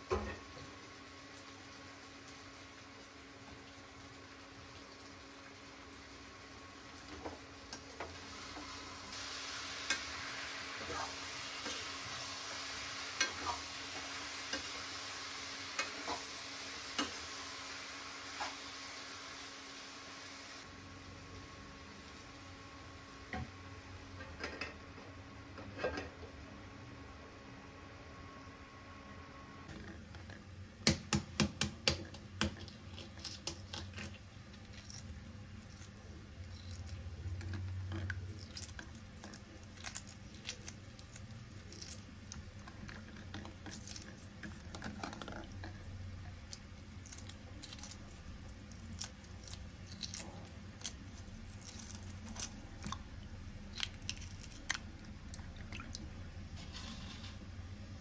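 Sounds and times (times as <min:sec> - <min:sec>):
shell crackling while peeled: 0:32.5 - 0:56.0.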